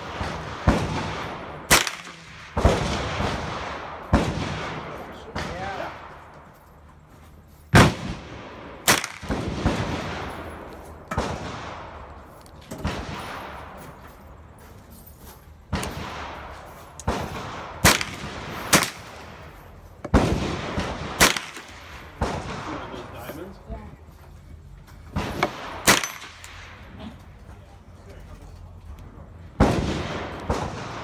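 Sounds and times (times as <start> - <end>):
echoing gunshots: 0.0 - 6.3, 7.7 - 13.8, 15.7 - 23.1, 25.1 - 27.0, 29.5 - 31.0.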